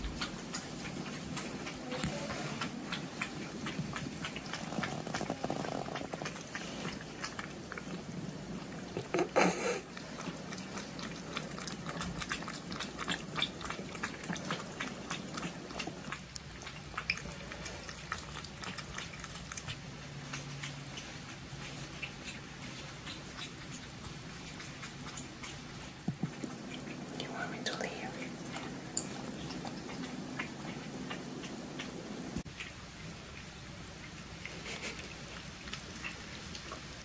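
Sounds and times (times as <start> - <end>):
cats crunching dry kibble: 0.0 - 27.0.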